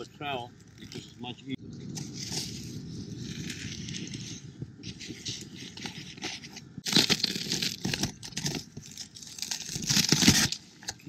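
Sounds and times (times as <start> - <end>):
trowel scraping insulation board: 3.2 - 10.6
board crunching and tearing: 5.1 - 11.0.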